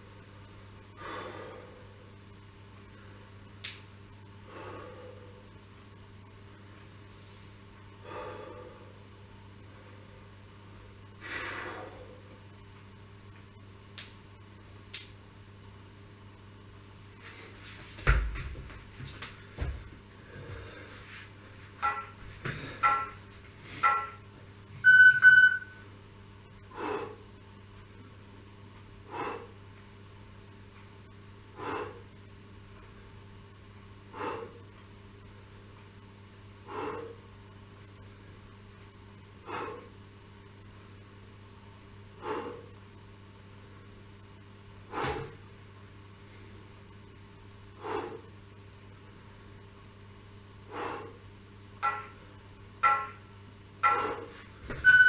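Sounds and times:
steady low hum: 0:00.0 - 0:55.0
man breathing hard: 0:01.0 - 0:02.2, 0:04.4 - 0:05.6, 0:08.0 - 0:10.2, 0:11.2 - 0:12.4, 0:20.2 - 0:21.4, 0:22.4 - 0:23.0, 0:26.6 - 0:27.3, 0:29.0 - 0:29.6, 0:31.6 - 0:32.1, 0:34.1 - 0:34.7, 0:36.6 - 0:37.3, 0:39.4 - 0:40.0, 0:42.2 - 0:42.8, 0:47.8 - 0:48.3, 0:50.7 - 0:51.2.

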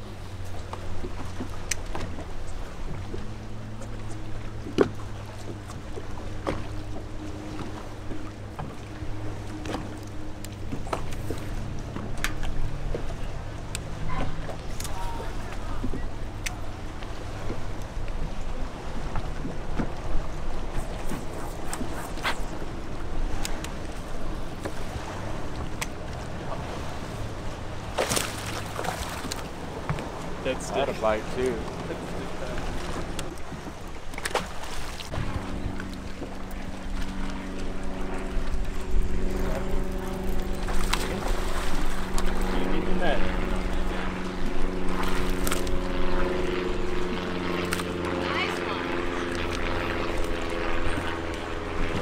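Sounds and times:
boat motor humming: 0:00.0 - 0:52.0
water noise: 0:00.0 - 0:52.0
wind: 0:00.0 - 0:52.0.

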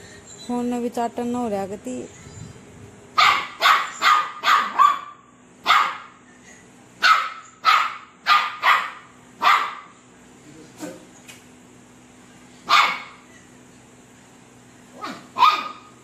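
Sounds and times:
puppy barking: 0:03.2 - 0:06.2, 0:07.0 - 0:10.0, 0:12.6 - 0:13.2, 0:14.9 - 0:16.0.

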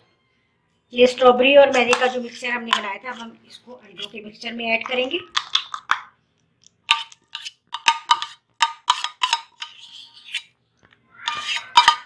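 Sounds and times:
metal spoon scraping saucepan: 0:01.1 - 0:05.9, 0:06.9 - 0:10.6, 0:11.2 - 0:12.0.

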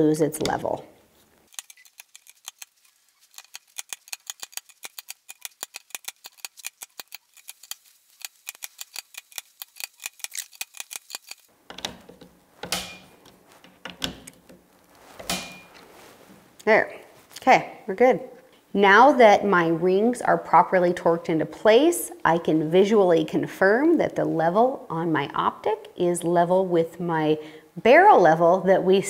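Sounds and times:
torque screwdriver clicking: 0:01.5 - 0:11.9
handling noise with knocks: 0:11.5 - 0:16.6.

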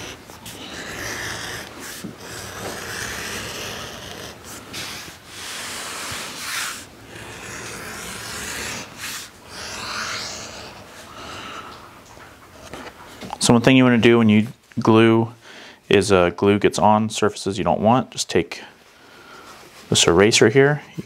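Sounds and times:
edge beveler shaving leather: 0:00.0 - 0:10.9.

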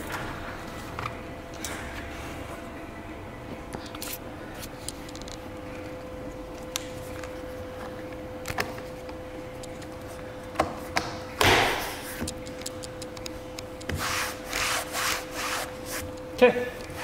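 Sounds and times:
faint steady hum: 0:00.0 - 0:17.0
cloth rubbing: 0:13.9 - 0:16.2.

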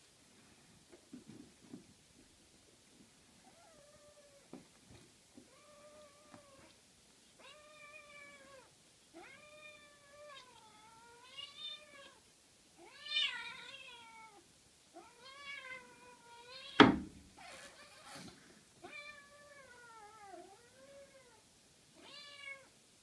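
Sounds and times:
cat meowing: 0:07.4 - 0:12.2, 0:12.8 - 0:14.4, 0:15.0 - 0:18.2, 0:18.8 - 0:21.4, 0:22.0 - 0:22.7.

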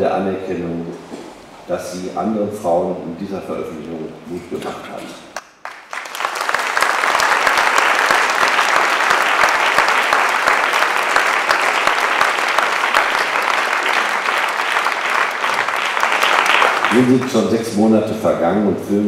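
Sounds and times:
audience applauding: 0:05.4 - 0:17.8.

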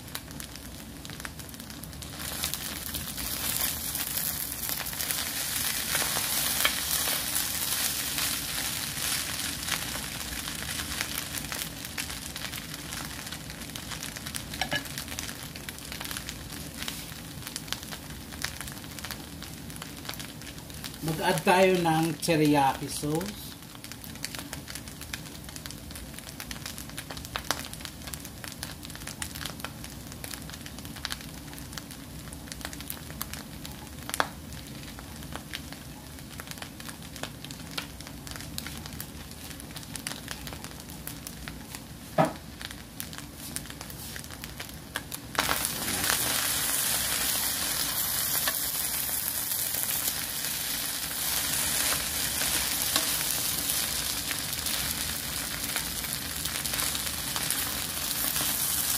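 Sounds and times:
rice sizzling and popping in a pan: 0:00.0 - 0:58.9.

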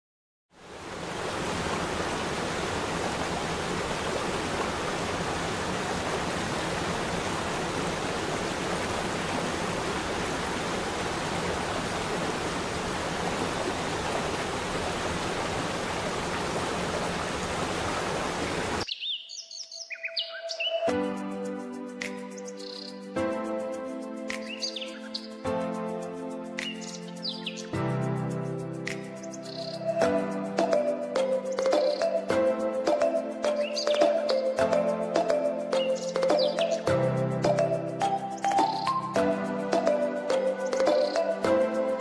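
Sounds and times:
waterfall roaring: 0:00.6 - 0:18.8
birds chirping: 0:18.5 - 0:20.9, 0:22.3 - 0:23.1, 0:24.4 - 0:25.4, 0:26.6 - 0:27.8, 0:29.2 - 0:30.0, 0:31.2 - 0:32.3, 0:33.4 - 0:34.6, 0:35.3 - 0:39.2, 0:39.9 - 0:41.4.

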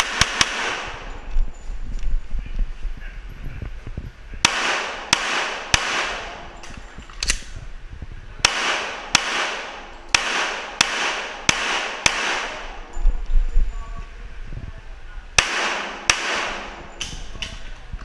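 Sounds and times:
pistol shots echoing indoors: 0:00.0 - 0:01.0, 0:04.5 - 0:06.5, 0:08.4 - 0:12.8, 0:15.4 - 0:17.1.

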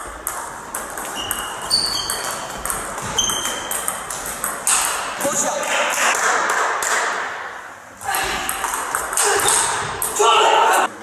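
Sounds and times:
ping pong ball clicking: 0:00.2 - 0:05.3, 0:08.5 - 0:10.1.

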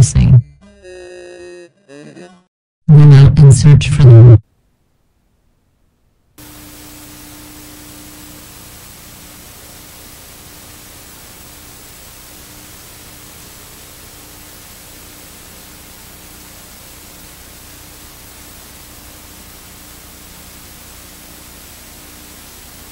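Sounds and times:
tv static hiss: 0:06.0 - 0:22.9.

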